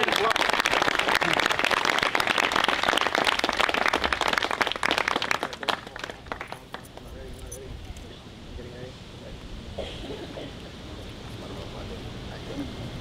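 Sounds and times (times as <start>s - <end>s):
small audience applauding: 0.0s - 7.1s.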